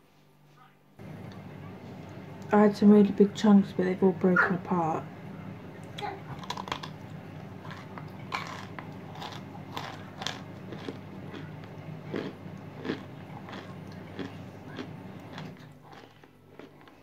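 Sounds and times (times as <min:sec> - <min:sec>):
person biting and chewing crunchily: 0:06.4 - 0:07.0, 0:07.6 - 0:11.5, 0:12.1 - 0:17.0.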